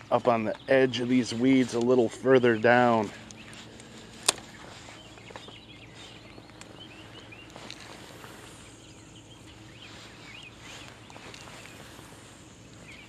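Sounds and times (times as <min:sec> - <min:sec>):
outdoor background noise: 0:00.0 - 0:13.0
small birds chirping: 0:00.0 - 0:13.0.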